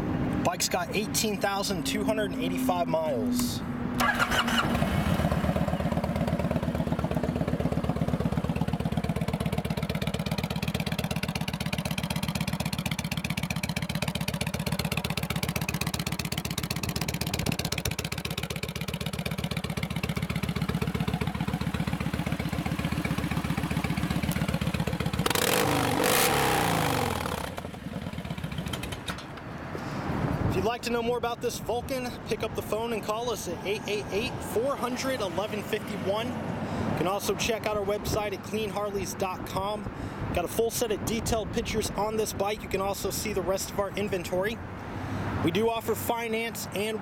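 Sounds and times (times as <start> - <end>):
motorcycle engine revving: 3.7 - 29.2
motorcycle engine idling: 4.0 - 29.4.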